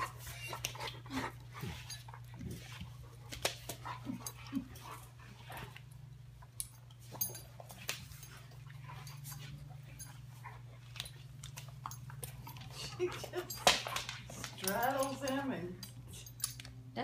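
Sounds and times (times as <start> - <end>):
steady low hum: 0.0 - 17.0
dog teeth clicking: 10.9 - 16.8.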